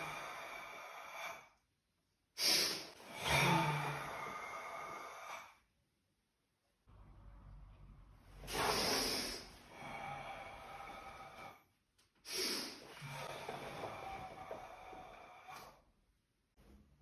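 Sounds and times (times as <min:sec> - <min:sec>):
forceful breathing: 0:08.4 - 0:15.9.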